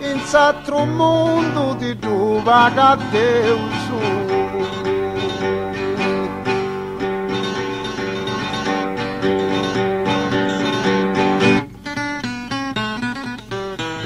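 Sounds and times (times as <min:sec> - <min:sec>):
acoustic guitar strumming chords: 0:00.0 - 0:14.0.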